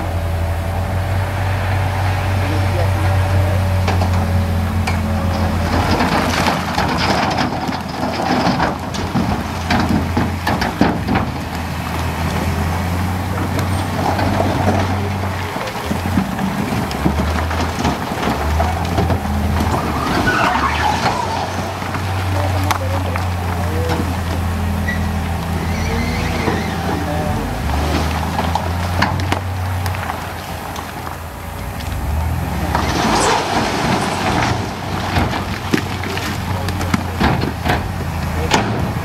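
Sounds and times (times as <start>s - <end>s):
heavy diesel engine running: 0.0s - 39.0s
stones clattering and scraping: 4.9s - 38.8s.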